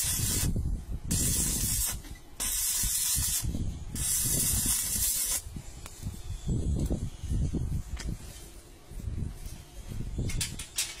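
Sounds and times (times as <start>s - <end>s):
electric arc welding crackling hiss: 0.0s - 6.1s.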